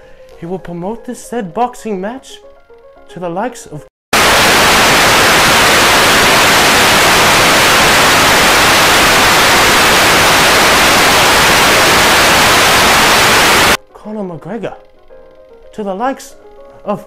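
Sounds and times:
television static hiss: 4.2 - 13.8.

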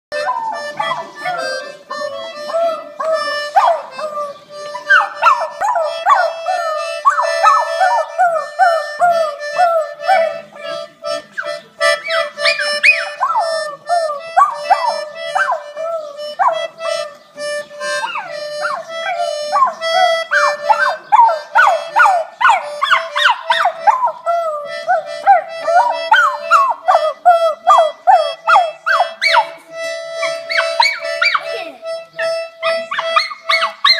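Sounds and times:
small accordion notes: 0.1 - 33.9
small dog howling and yipping: 0.2 - 1.4, 2.6 - 10.3, 12.4 - 16.6, 18.1 - 29.5, 32.9 - 33.9.

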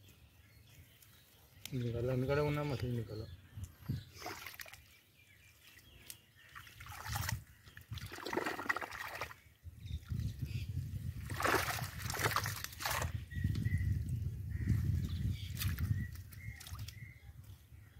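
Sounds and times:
water trickling and sloshing: 3.8 - 14.1, 14.7 - 17.0.

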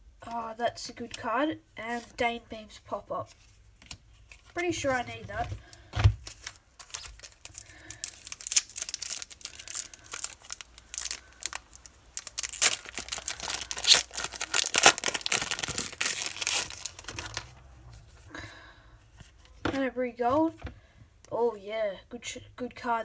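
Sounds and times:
plastic wrapper tearing and crinkling: 5.7 - 17.6.

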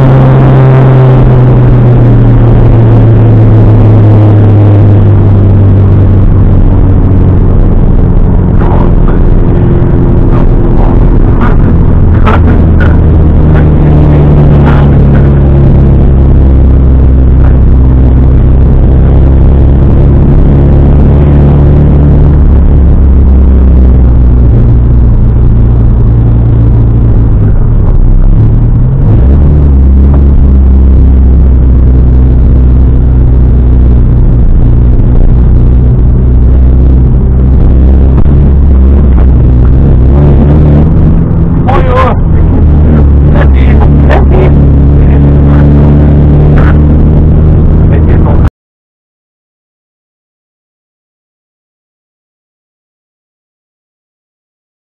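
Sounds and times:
car engine running at low revs: 0.0 - 48.5.

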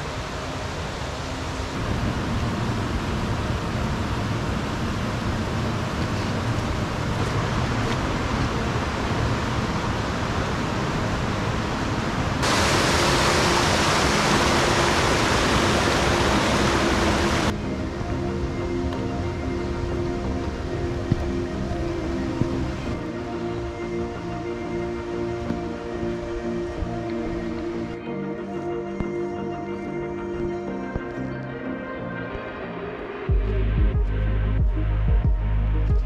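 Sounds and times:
water cascading over rocks: 0.0 - 18.2
river rushing: 0.0 - 28.0.

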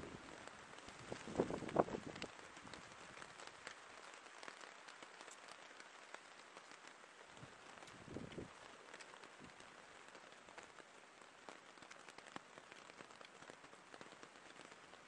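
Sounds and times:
patter of small ticks: 0.0 - 15.0.

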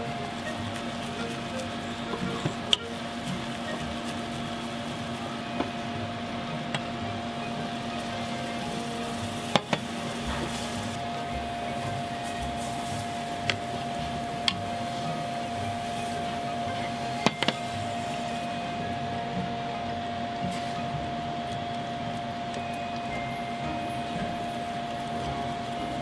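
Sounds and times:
steady mechanical hum: 0.0 - 26.0
spatula stirring in saucepan: 7.7 - 18.2.

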